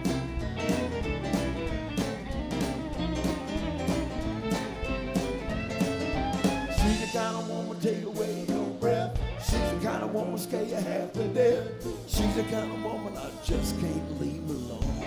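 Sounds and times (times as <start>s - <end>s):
violin playing lead: 0.0s - 7.5s
drums with steady beat: 0.0s - 10.4s, 11.8s - 15.0s
bass: 0.0s - 15.0s
electric guitar: 0.0s - 15.0s.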